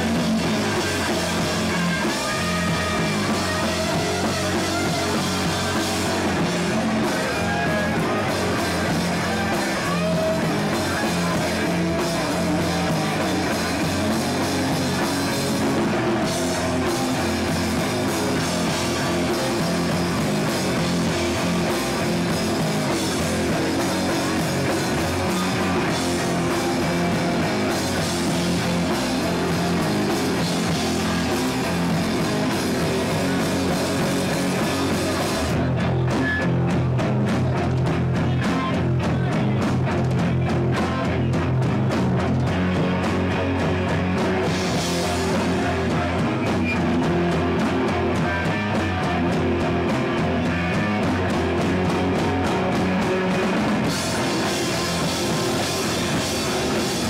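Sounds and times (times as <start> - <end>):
bass guitar: 0.0 - 57.0
drums: 0.0 - 57.0
electric guitar: 0.0 - 57.0.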